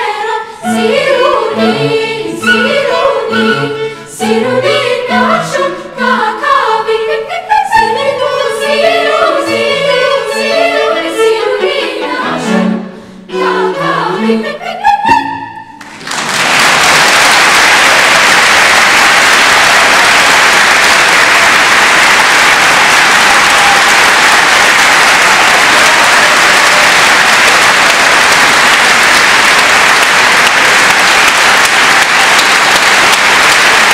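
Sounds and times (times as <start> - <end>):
choir singing: 0.0 - 15.7
audience applause: 15.8 - 33.9.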